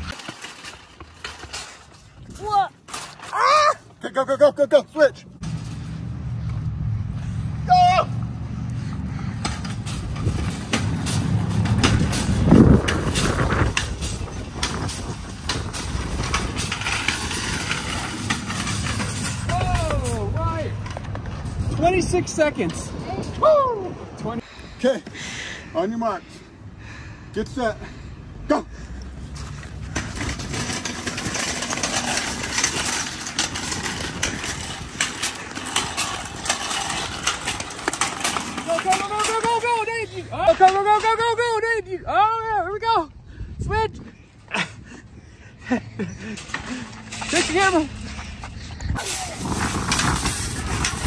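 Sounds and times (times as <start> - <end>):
shopping cart rattling on concrete: 0.0 - 3.8, 9.4 - 23.3, 29.4 - 41.5, 46.0 - 51.0.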